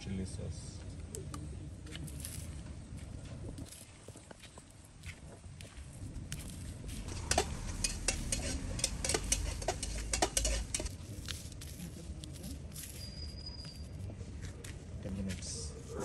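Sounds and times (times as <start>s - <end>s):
hand mixing wet food: 7.0s - 10.9s
clicks against metal plate: 7.1s - 10.9s.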